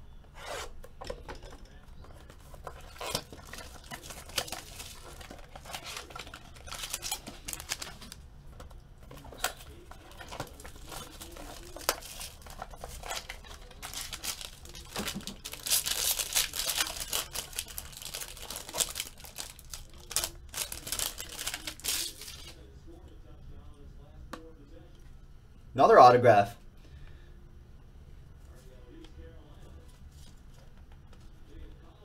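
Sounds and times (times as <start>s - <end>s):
foil pack crinkling: 2.2s - 8.2s, 9.0s - 22.6s
cellophane crinkling and tearing: 2.6s - 8.2s, 9.1s - 22.6s.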